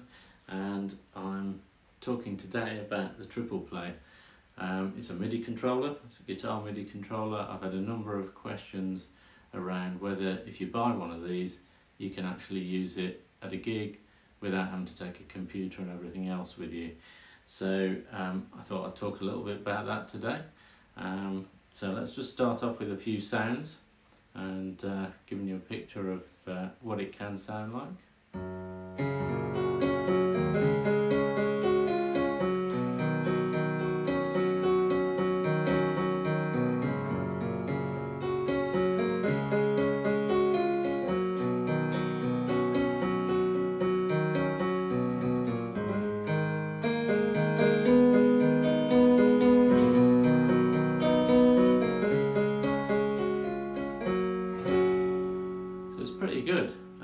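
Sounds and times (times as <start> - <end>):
piano-like keyboard melody: 28.4 - 57.0.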